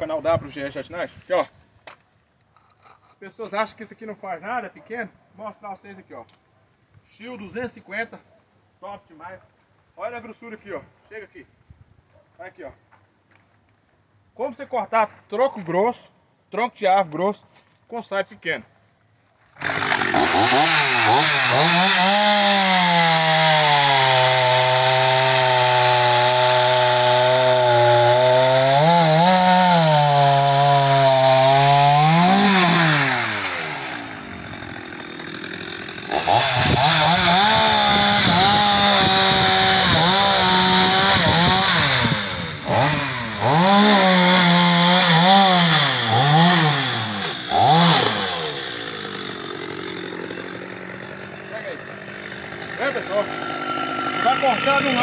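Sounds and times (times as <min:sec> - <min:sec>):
chainsaw cutting wood: 0:19.5 - 0:55.0.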